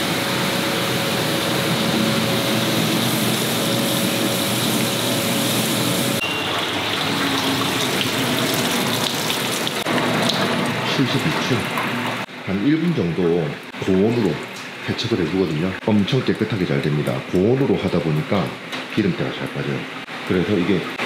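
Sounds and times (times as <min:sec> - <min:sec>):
dishwasher water spraying: 0:00.0 - 0:12.3.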